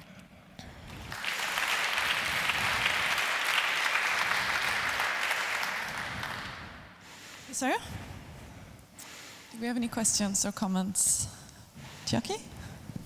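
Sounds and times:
audience applauding: 0:00.8 - 0:06.8.

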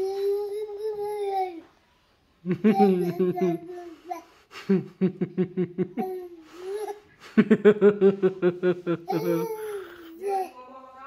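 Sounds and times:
rhythmic bursts of laughter: 0:07.2 - 0:09.5.

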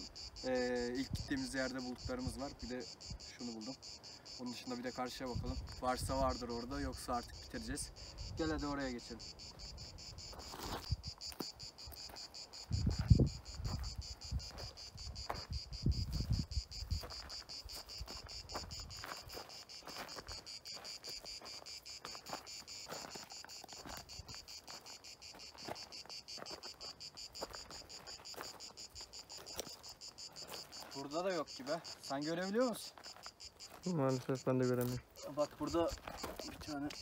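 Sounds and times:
insects trilling: 0:00.0 - 0:37.0
footsteps crunching on stones: 0:10.2 - 0:37.0.

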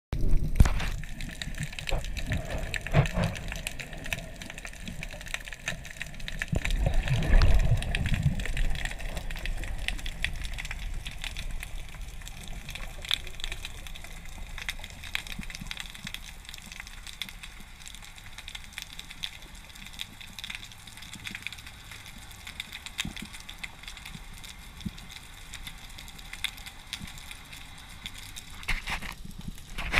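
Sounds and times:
faint crackling clicks: 0:00.2 - 0:29.9
underwater rushing water: 0:00.2 - 0:29.9.

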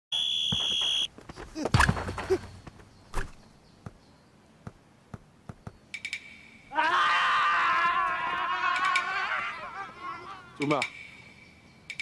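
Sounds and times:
high whistle-like tone: 0:00.1 - 0:01.1
thud: 0:00.5 - 0:02.5.

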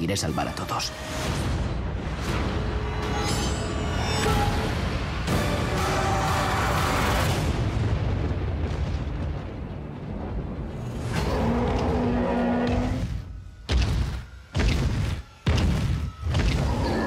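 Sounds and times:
low rumble: 0:06.5 - 0:14.5.

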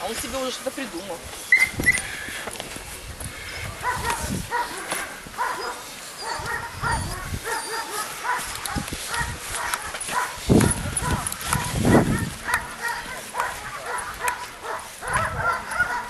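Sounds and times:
puppy yapping: 0:03.8 - 0:16.0.

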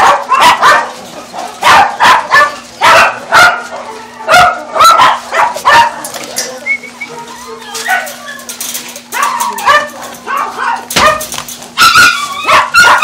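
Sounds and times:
dog barking: 0:00.0 - 0:01.0, 0:01.6 - 0:06.0, 0:09.1 - 0:13.0.

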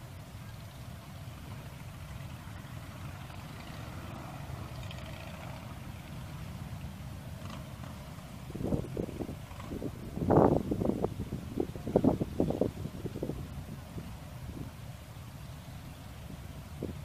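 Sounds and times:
wind buffeting microphone: 0:08.2 - 0:15.1, 0:16.0 - 0:17.0.

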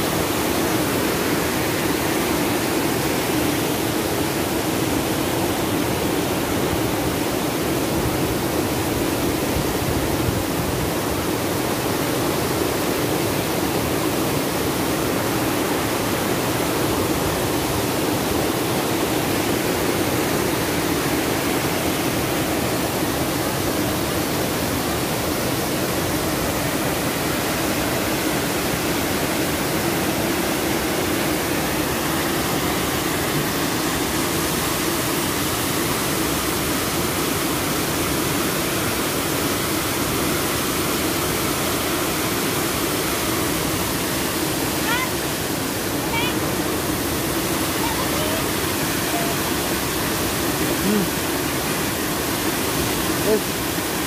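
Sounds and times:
waterfall pouring onto rocks: 0:11.0 - 0:54.0.

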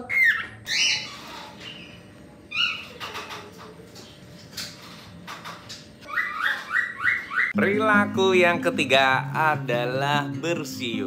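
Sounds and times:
cockatiel chirping: 0:00.0 - 0:03.0, 0:06.1 - 0:07.6.

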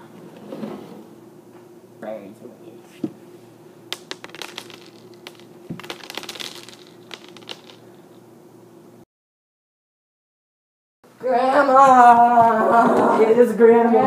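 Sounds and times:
cereal scattering on wooden floor: 0:03.9 - 0:08.0.

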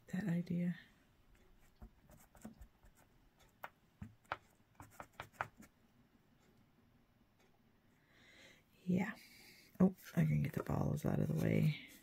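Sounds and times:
small taps and clicks: 0:01.7 - 0:05.8.

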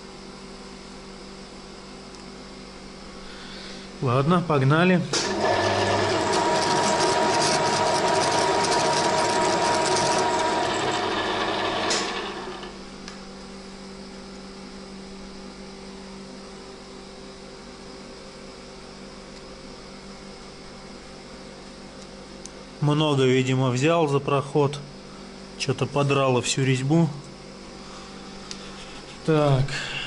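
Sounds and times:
faint steady hum: 0:00.0 - 0:05.3
lathe stopping click: 0:05.1 - 0:12.8
lathe grinding steel: 0:05.2 - 0:12.8.

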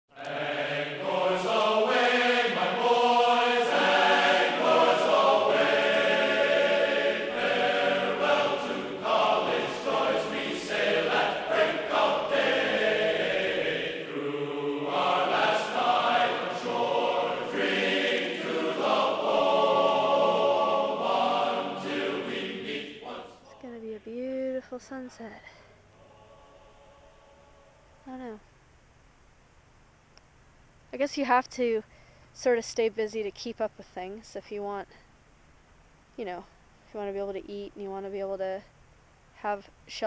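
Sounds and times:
choir singing held notes: 0:00.1 - 0:24.1, 0:25.9 - 0:28.0.

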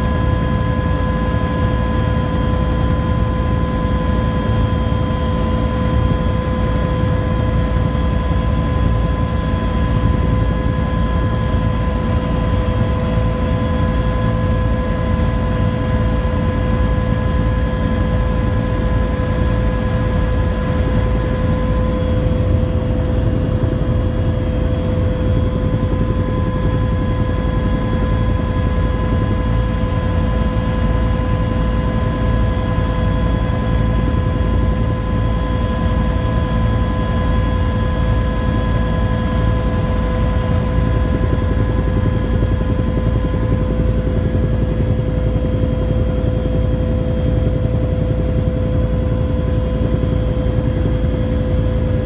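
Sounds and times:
helicopter rotor and engine rumble: 0:00.0 - 0:52.0.

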